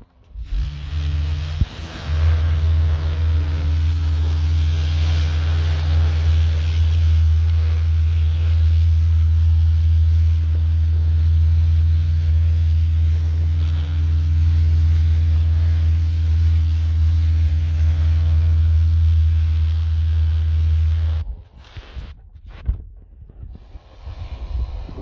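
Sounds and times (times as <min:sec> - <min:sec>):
pressure washer motor drone: 0:00.0 - 0:21.2
water jet hissing on roof tiles: 0:00.3 - 0:22.1.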